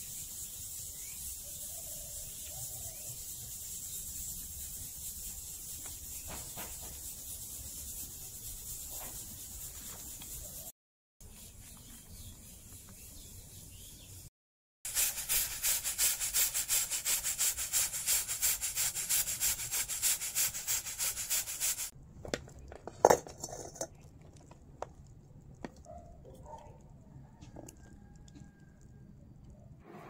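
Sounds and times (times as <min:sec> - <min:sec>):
pressure cooker steam hissing: 0:14.9 - 0:22.0.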